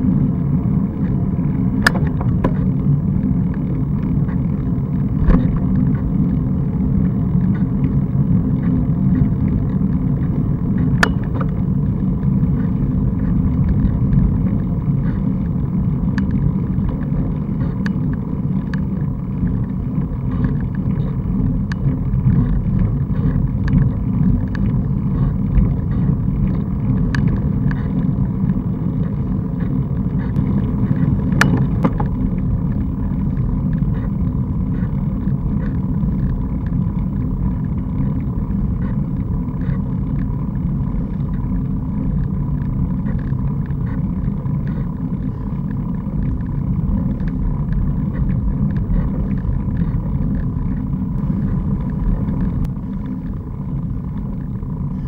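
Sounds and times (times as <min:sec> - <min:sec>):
wind and road rumble: 0:00.0 - 0:55.0.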